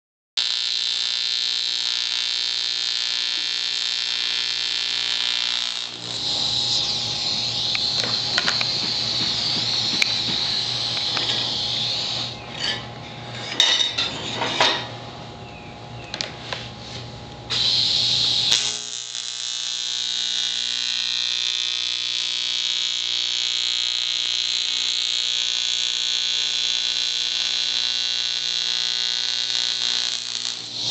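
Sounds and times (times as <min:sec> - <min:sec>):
welding arc buzzing: 0:00.4 - 0:12.4, 0:17.4 - 0:30.9.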